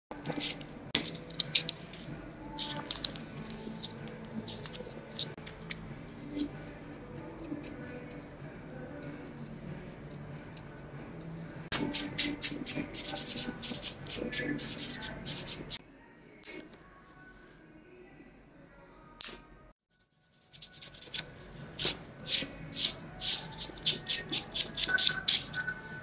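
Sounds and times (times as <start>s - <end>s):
nail file scratching fingernail: 0.2s - 1.8s, 2.6s - 5.6s, 11.7s - 15.8s, 20.1s - 25.8s.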